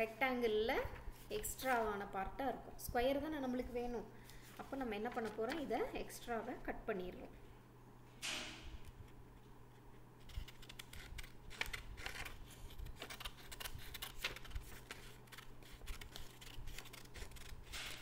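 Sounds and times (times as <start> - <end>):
paper rustling: 4.3 - 5.8, 10.2 - 18.0
scissors cutting paper: 10.2 - 18.0.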